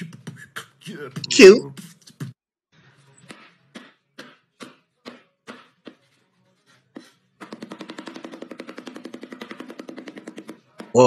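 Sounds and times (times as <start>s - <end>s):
cleaver chopping on wooden board: 3.7s - 6.0s, 7.4s - 10.9s.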